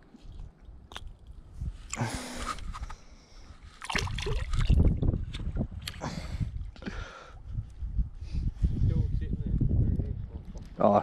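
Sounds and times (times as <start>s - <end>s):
shallow water splashing: 3.7s - 5.1s.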